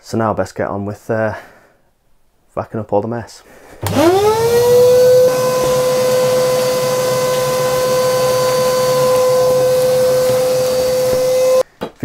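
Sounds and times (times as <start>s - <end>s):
shop vac motor whining: 3.8s - 11.6s.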